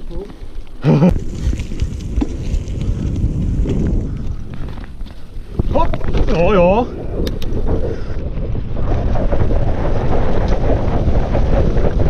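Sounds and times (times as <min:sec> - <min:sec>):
wind buffeting microphone: 0:01.1 - 0:12.0
sharp clicks: 0:07.2 - 0:07.6.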